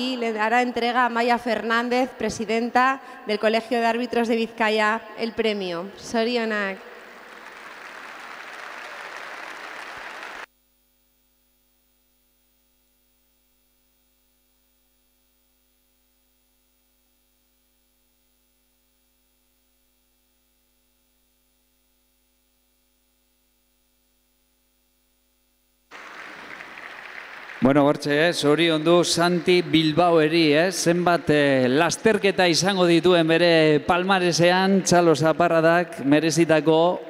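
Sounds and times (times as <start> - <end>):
faint steady hum: 0.0 - 37.0
audience applauding: 7.0 - 10.5, 25.9 - 33.4.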